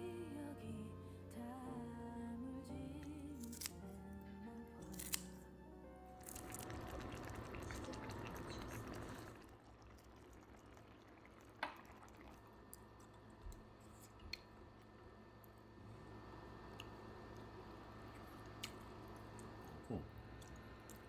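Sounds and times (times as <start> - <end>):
soft chewing: 6.2 - 15.7, 16.5 - 21.0
stew bubbling in a pot: 6.2 - 15.7.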